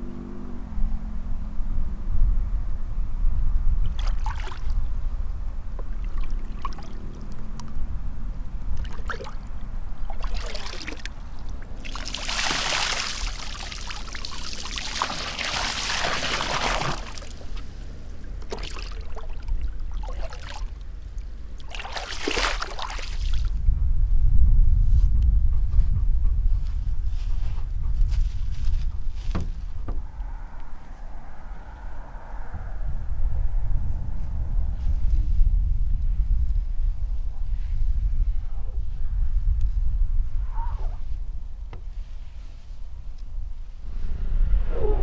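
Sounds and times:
low rumble: 0.0 - 12.3, 13.0 - 45.0
water pouring and splashing: 3.8 - 4.8, 5.9 - 7.0, 8.8 - 23.5.

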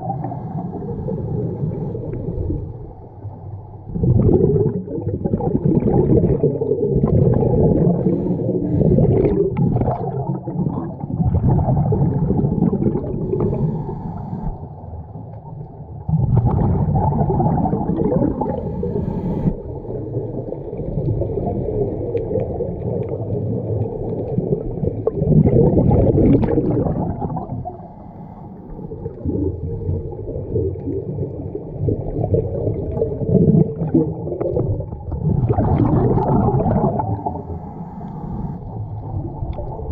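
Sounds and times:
muffled underwater bubbling: 0.0 - 39.9
diver breathing through regulator: 7.7 - 9.6, 13.1 - 14.7, 18.3 - 19.6, 27.6 - 29.1, 37.0 - 38.8.

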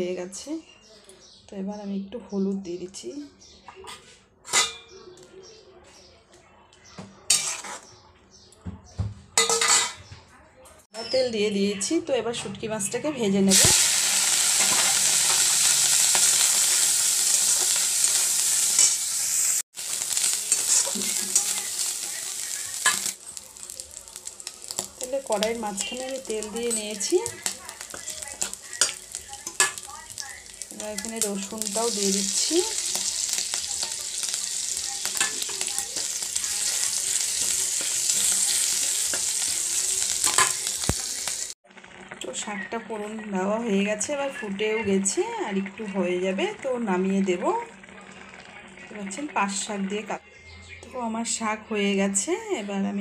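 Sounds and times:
spatula scraping a pan: 7.3 - 7.9, 13.6 - 23.3
spatula scraping wok: 7.3 - 7.9, 13.5 - 41.6
fish sizzling in hot oil: 13.5 - 43.8.

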